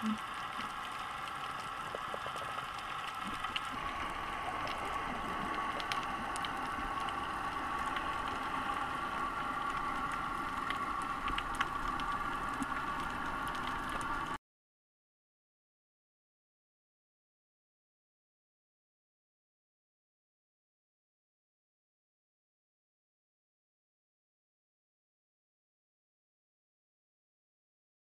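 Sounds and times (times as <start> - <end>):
faint scattered clicks: 0.0 - 14.4
steady underwater hiss: 0.0 - 14.4.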